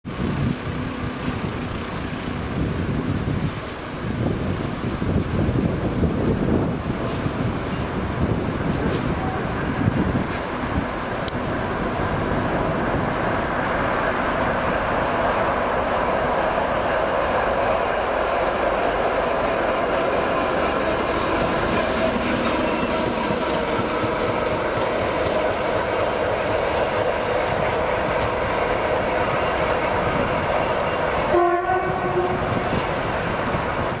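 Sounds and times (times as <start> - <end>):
diesel locomotive engine running: 0.0 - 34.0
wheels clattering on rails: 0.1 - 16.8, 17.4 - 31.4
locomotive horn: 30.6 - 33.0.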